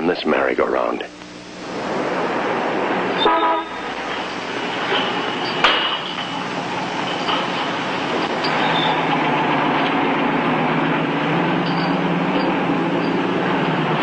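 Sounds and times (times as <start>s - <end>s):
street traffic noise: 1.1s - 14.0s
car horn toot: 3.2s - 3.8s.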